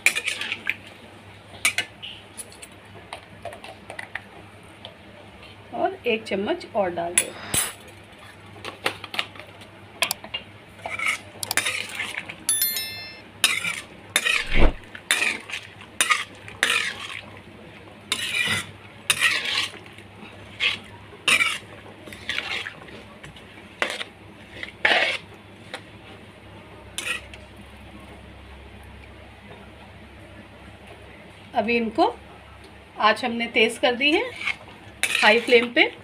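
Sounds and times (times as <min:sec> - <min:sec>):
ringing metal clink: 0:12.5 - 0:13.3
metal spatula scraping a wok: 0:18.1 - 0:19.8, 0:24.8 - 0:25.2, 0:34.3 - 0:35.6.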